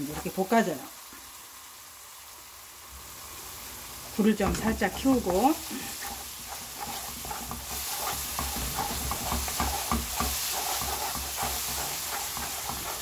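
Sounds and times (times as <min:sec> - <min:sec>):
paste sizzling in frying pan: 0:00.0 - 0:13.0
spatula scraping pan: 0:04.4 - 0:13.0.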